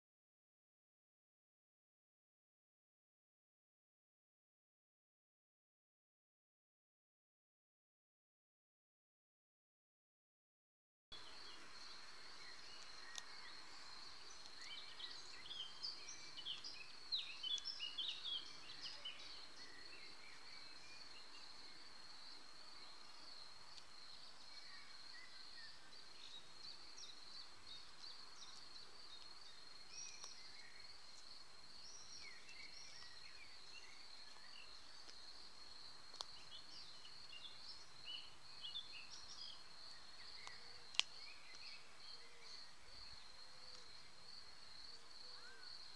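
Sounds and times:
small birds chirping: 11.1 - 45.9
sharp tick: 40.4 - 41.7.

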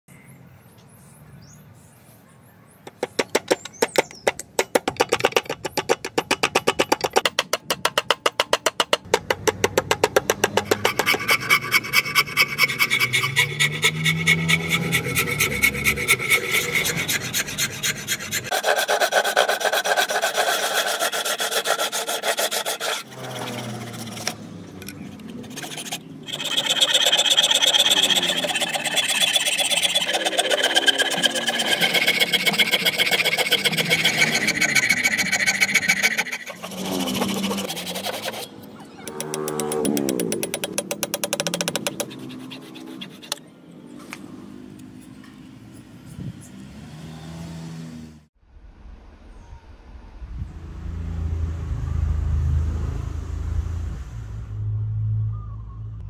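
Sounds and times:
file rasping on hardwood: 10.0 - 24.4, 25.3 - 38.5, 40.7 - 43.4.

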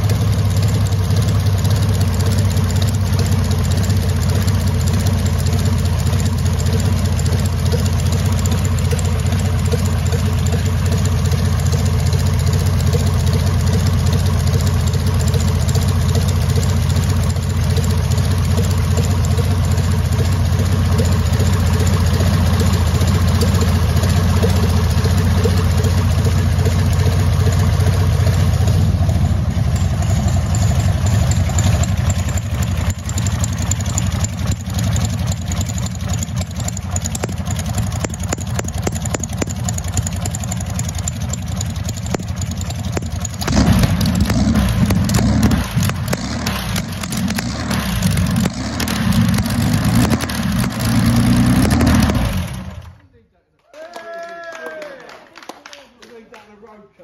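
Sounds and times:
aero engine running and revving: 0.0 - 53.0.

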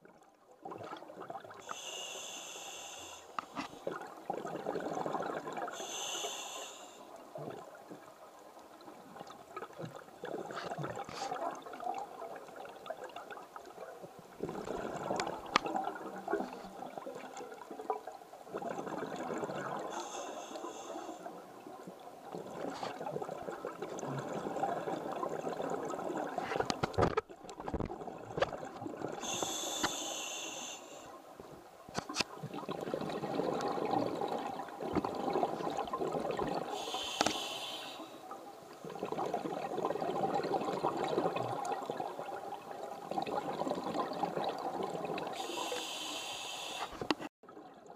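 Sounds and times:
diver inhaling through regulator: 1.6 - 3.8, 5.7 - 7.1, 19.9 - 21.3, 29.2 - 31.2, 36.7 - 38.2, 45.4 - 47.1
bubbling exhalation underwater: 3.9 - 5.8, 14.4 - 17.3, 18.5 - 20.0, 32.5 - 36.9, 38.8 - 45.5.

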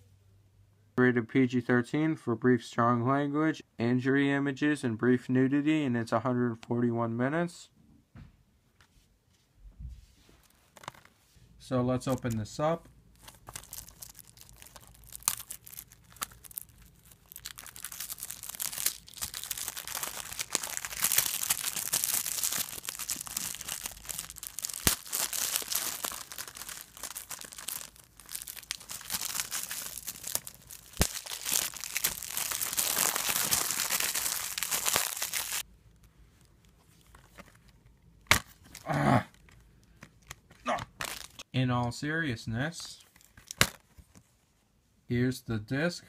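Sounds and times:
plastic wrap crinkling and tearing: 13.2 - 41.4.

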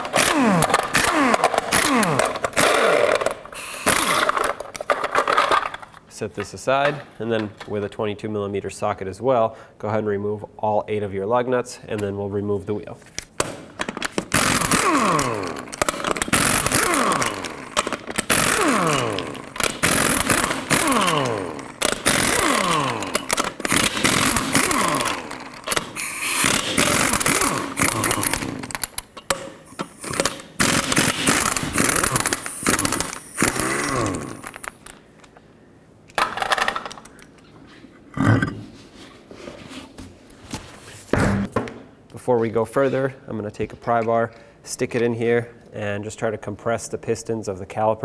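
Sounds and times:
pneumatic impact wrench hammering: 0.0 - 5.7, 13.4 - 34.9
air motor falling whine: 29.8 - 34.7.

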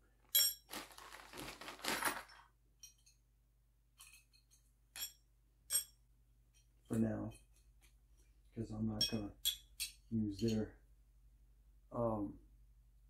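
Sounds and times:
rustling and scraping: 0.6 - 2.5.

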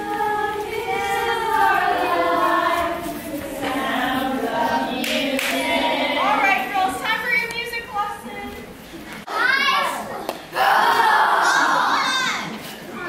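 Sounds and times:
children singing together: 0.0 - 7.0.

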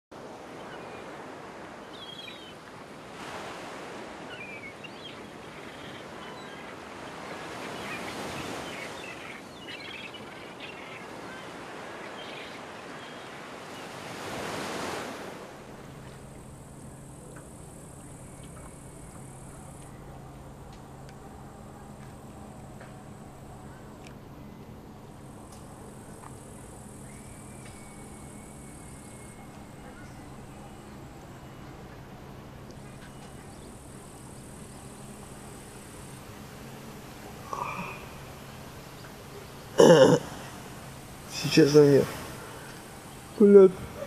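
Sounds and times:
sea waves breaking: 0.2 - 44.0
low hum with thin high tone: 15.6 - 44.0
faint high chirps: 25.9 - 36.2.

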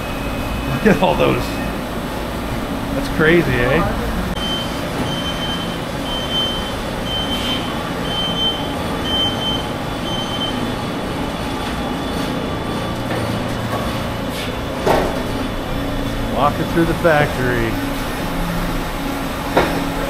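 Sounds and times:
machines humming and whirring: 0.0 - 20.0
high electronic beep: 4.4 - 10.6.

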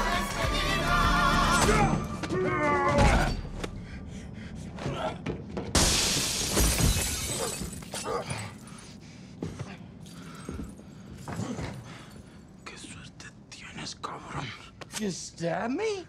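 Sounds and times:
person singing a song: 0.0 - 2.2
grunts: 4.8 - 5.4, 11.3 - 12.1
glass shattering: 5.8 - 8.4.

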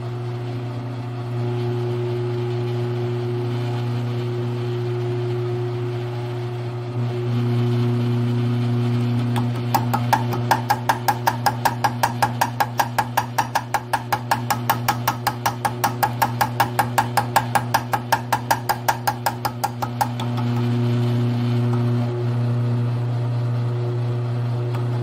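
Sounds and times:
mill motor humming: 7.0 - 25.0
cutter ticking on metal: 9.4 - 20.8.

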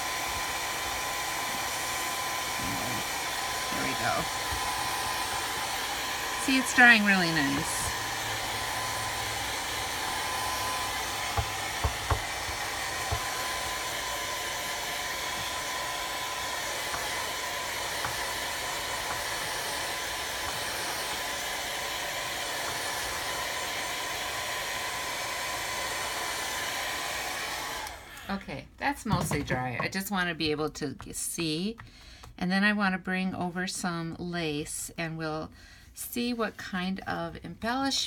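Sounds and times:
hair dryer blowing: 0.0 - 30.0.

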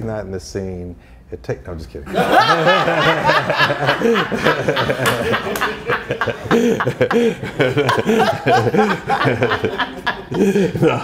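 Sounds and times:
man and woman laughing: 2.1 - 11.0
people laughing along: 2.1 - 11.0.

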